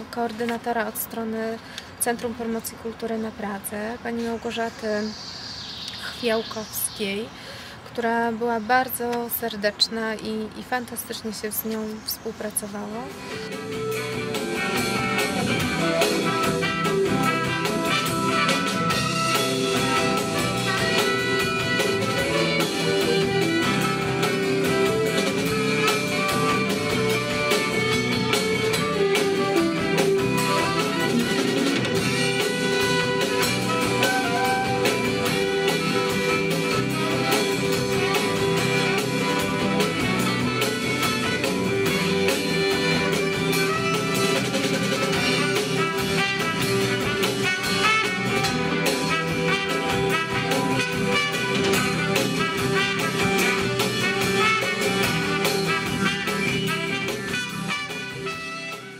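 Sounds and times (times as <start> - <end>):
drum kit: 13.1 - 58.9
saxophone: 13.2 - 58.9
trumpet: 13.6 - 58.9.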